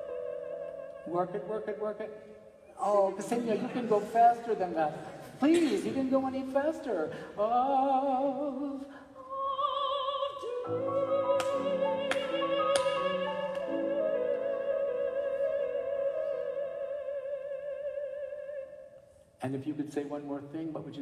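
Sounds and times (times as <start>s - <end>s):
operatic soprano singing: 2.8s - 19.0s.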